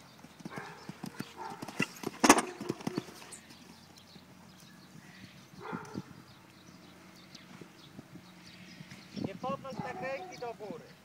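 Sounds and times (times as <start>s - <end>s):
horse hoofbeats on sand: 0.0s - 3.6s.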